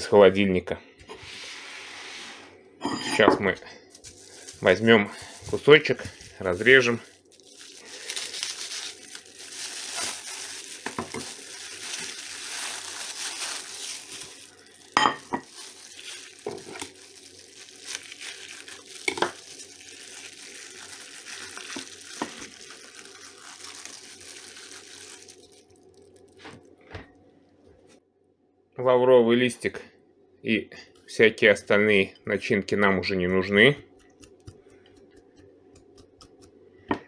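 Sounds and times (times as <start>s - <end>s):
plastic bag crinkling: 3.9s - 26.8s.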